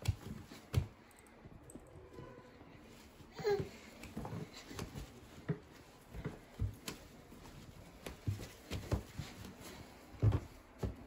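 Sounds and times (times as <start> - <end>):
footsteps on stairs: 3.5 - 11.0
soft thumps on carpeted stairs: 3.6 - 11.0.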